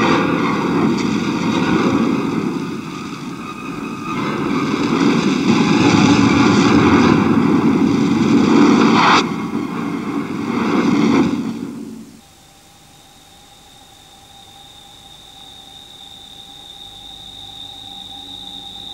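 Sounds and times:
heavy rumbling roar: 0.0 - 12.2
engine-like whine: 0.0 - 18.9
sharp rising whoosh: 5.6 - 12.2
faint steady tone: 11.6 - 18.9.

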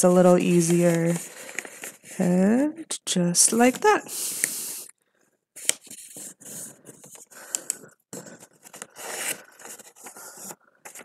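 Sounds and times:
paper rustling and scraping: 0.0 - 2.4, 5.6 - 7.3, 8.2 - 11.0.

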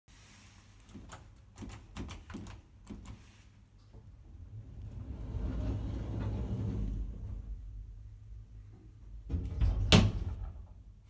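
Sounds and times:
lift car low rumble: 3.9 - 10.7.

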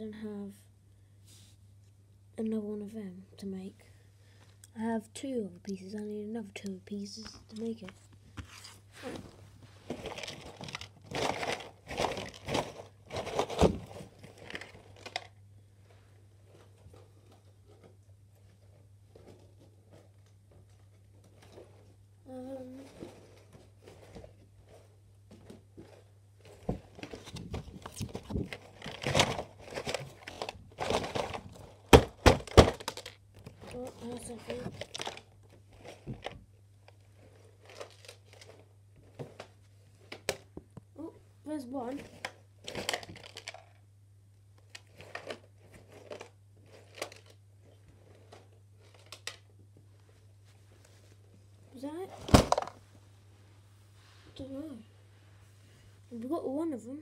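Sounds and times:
crinkly packaging rustling: 5.7 - 40.6, 41.7 - 43.8, 44.6 - 53.0
plastic pieces clicking and rattling: 10.0 - 13.6, 14.2 - 15.4, 27.8 - 33.2, 42.2 - 43.8
plastic pieces clicking: 32.0 - 33.2, 42.2 - 43.8.

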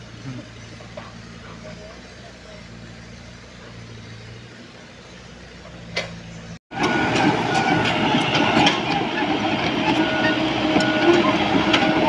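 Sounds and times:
diesel engine running: 0.0 - 12.0
crawler tracks clanking: 5.6 - 12.0
track squeal: 6.1 - 12.0.

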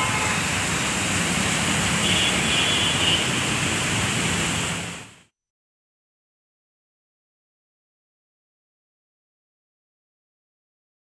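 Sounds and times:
rain: 0.0 - 5.3
traffic on a wet street: 0.0 - 5.3.

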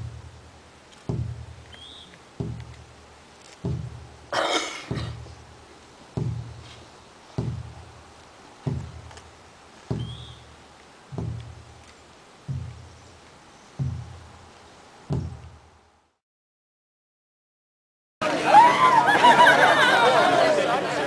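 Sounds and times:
large drum booming: 3.7 - 4.1, 4.9 - 5.3, 6.2 - 6.6, 7.4 - 7.9, 8.6 - 9.1, 11.1 - 11.7, 12.5 - 13.0, 13.8 - 14.4, 15.1 - 15.7.

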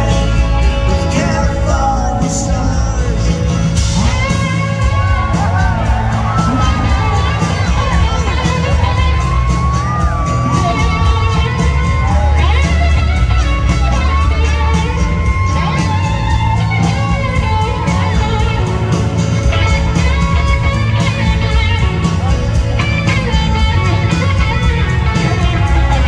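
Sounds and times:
live rock band playing: 0.0 - 26.0
electric slide guitar solo: 3.9 - 26.0.

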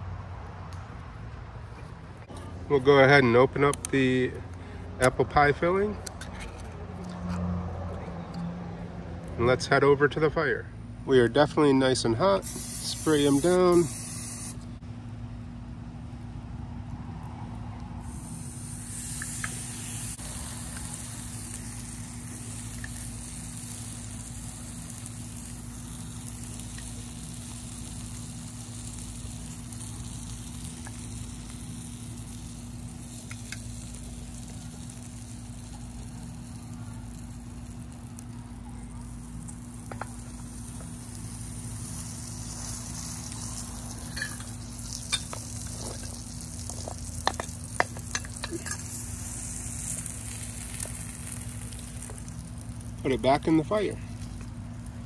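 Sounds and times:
food sizzling: 12.4 - 14.8, 18.0 - 55.0.

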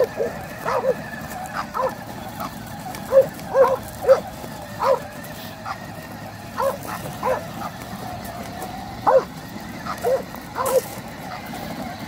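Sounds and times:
dog barking: 0.0 - 1.0, 1.6 - 2.0, 3.1 - 5.8, 6.6 - 7.5, 9.0 - 10.9.

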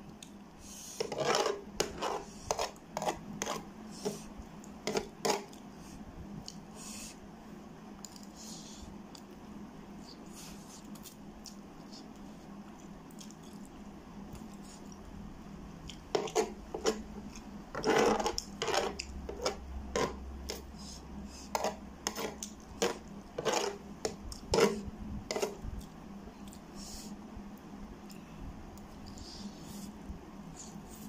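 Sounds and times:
metal spoon scraping a tray: 1.0 - 3.6, 17.8 - 20.6, 21.6 - 23.8, 24.5 - 25.6.

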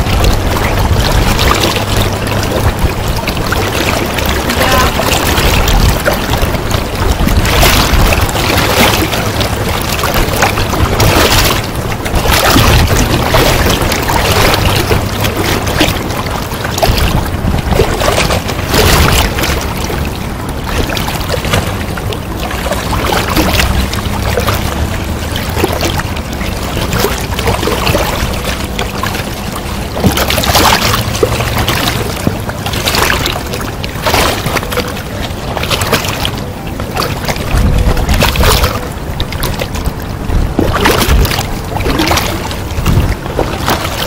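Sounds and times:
river water rushing: 0.0 - 44.0
wind buffeting microphone: 0.0 - 44.0.

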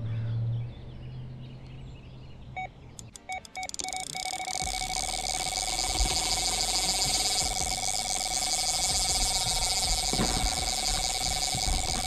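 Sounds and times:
bite alarm beeps: 2.6 - 12.0
bite alarm continuous tone: 3.0 - 12.0.

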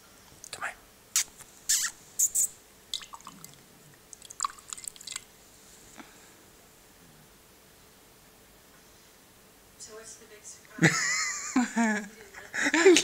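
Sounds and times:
cat splashing water in glass: 2.9 - 3.6, 4.2 - 5.3.

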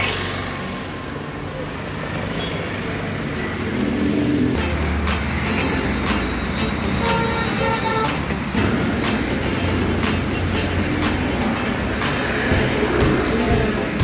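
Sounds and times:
heavy vehicle rumble: 0.0 - 14.0
road traffic passing: 0.0 - 14.0
vehicle horn toots: 4.6 - 11.4.

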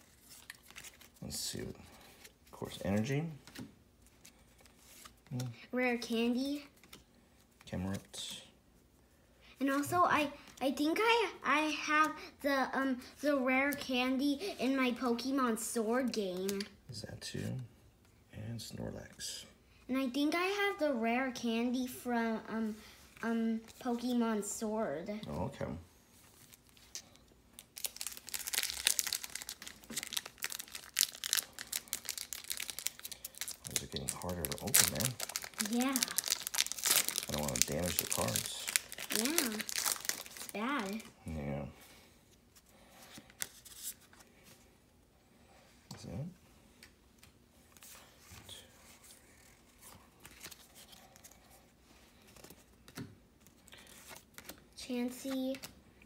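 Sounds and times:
foil wrapper crinkling: 26.4 - 41.1.

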